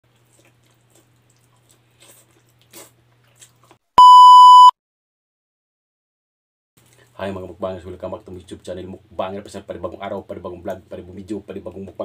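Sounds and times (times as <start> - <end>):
mouth sounds of eating: 0.1 - 3.8
electronic beep: 4.0 - 4.7.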